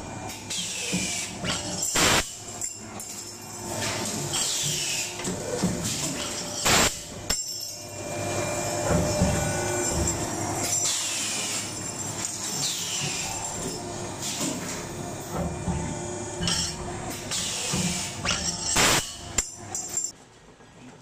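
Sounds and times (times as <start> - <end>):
hydraulic machine mechanical noise: 0.0 - 20.1.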